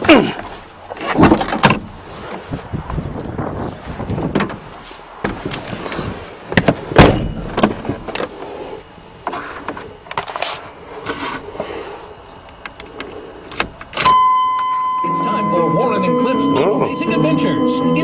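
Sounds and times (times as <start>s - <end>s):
car door clicks and rattles: 0.9s - 1.9s, 6.5s - 8.3s
steady high-pitched beep: 14.0s - 18.0s.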